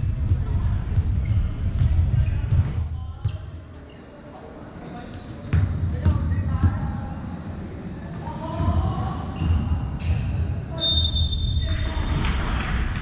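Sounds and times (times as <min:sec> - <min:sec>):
ball bouncing on court: 0:05.5 - 0:06.9.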